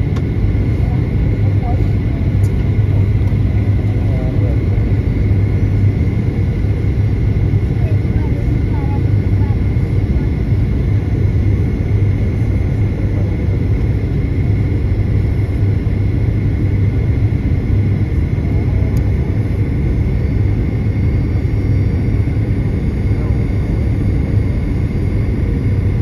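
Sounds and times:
airliner engines and airflow rumble: 0:00.0 - 0:26.0.

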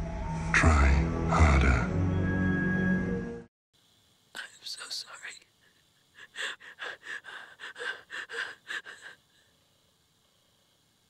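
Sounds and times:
woman gasping while crying: 0:06.2 - 0:09.3.

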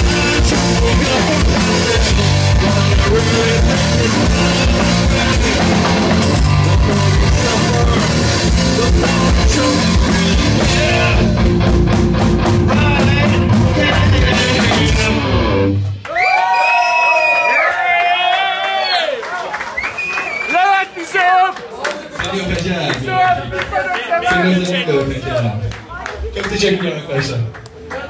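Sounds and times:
grunge band playing loud: 0:00.0 - 0:16.1.

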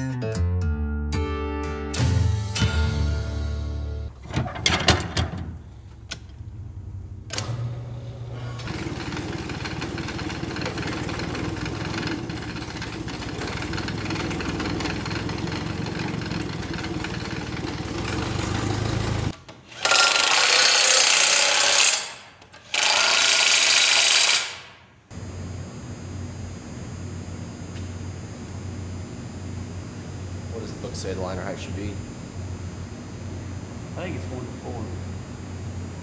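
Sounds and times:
machine running steadily: 0:08.3 - 0:19.4, 0:25.1 - 0:36.0.

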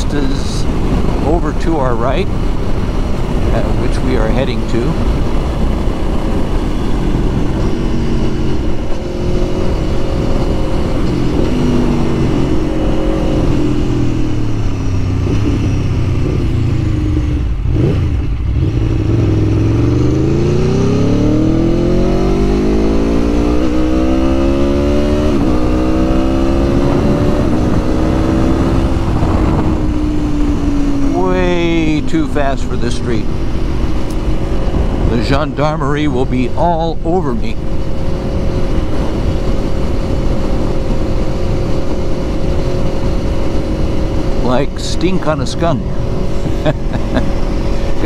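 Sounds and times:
motorcycle engine: 0:00.0 - 0:48.0
wind noise on microphone: 0:04.8 - 0:31.8, 0:33.2 - 0:35.8, 0:37.5 - 0:44.7.

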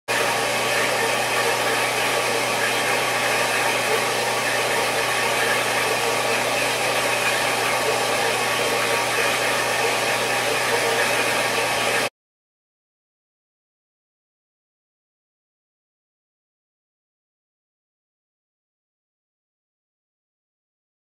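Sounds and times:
band saw running: 0:00.1 - 0:12.1.

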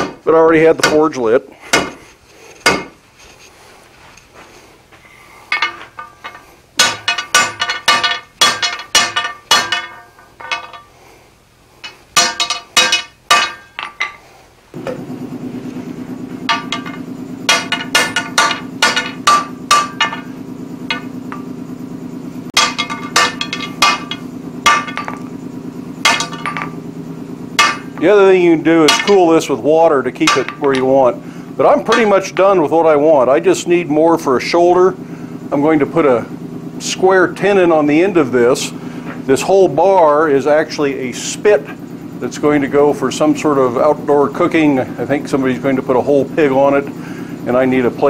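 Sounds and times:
gas forge hum: 0:00.0 - 0:48.0
hammer ringing on anvil: 0:05.5 - 0:10.8, 0:11.8 - 0:14.2, 0:16.4 - 0:21.6, 0:22.6 - 0:25.4, 0:26.0 - 0:26.8, 0:27.6 - 0:28.1, 0:28.8 - 0:32.6
steel bar slammed on steel block: 0:06.8 - 0:10.6, 0:12.2 - 0:14.0, 0:16.5 - 0:20.3, 0:22.6 - 0:25.3, 0:26.0 - 0:26.7, 0:27.6 - 0:28.0, 0:28.9 - 0:29.2, 0:30.2 - 0:30.9.

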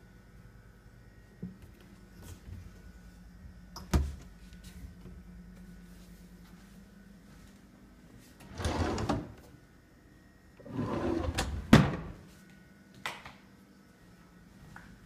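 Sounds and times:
wooden drawer sliding: 0:08.4 - 0:09.4, 0:10.6 - 0:12.1
drawer shutting knock: 0:11.2 - 0:12.2.

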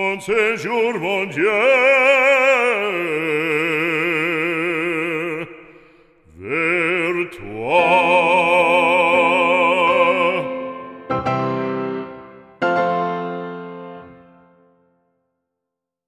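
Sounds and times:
operatic solo singing: 0:00.0 - 0:11.1.

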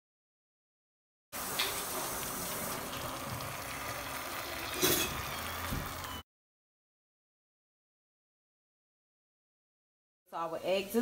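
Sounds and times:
eggs sizzling in a pan: 0:01.4 - 0:06.2.

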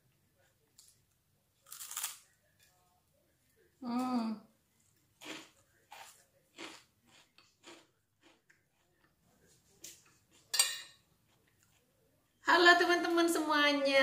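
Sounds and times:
person chewing crunchy food: 0:05.2 - 0:09.1.

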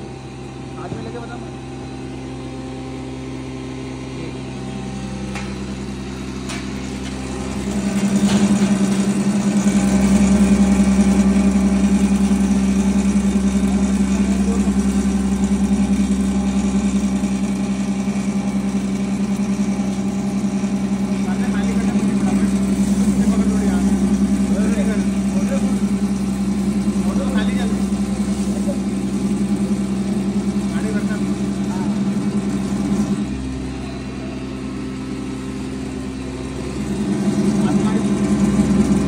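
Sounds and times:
grinder machine humming: 0:00.0 - 0:39.0
powder pouring into hopper: 0:06.2 - 0:33.4, 0:36.6 - 0:39.0.

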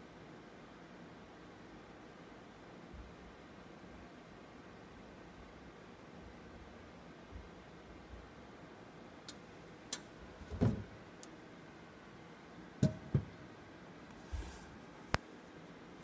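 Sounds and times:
loud thump: 0:10.5 - 0:10.9, 0:12.8 - 0:13.4.

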